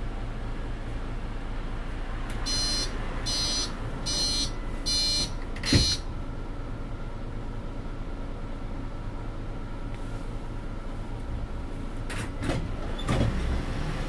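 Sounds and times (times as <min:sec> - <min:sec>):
bus engine humming: 0:00.0 - 0:14.0
door warning beeps: 0:02.4 - 0:06.1
bus doors shutting thump: 0:05.1 - 0:06.1, 0:12.0 - 0:13.6.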